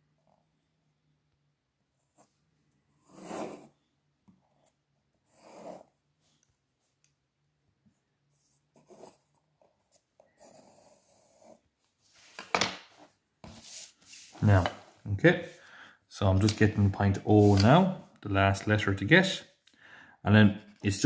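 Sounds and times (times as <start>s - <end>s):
pencil scratching on paper: 2.1s - 3.8s, 5.2s - 6.0s, 8.3s - 11.7s
soft rubbing on paper: 13.0s - 15.7s, 17.3s - 17.8s.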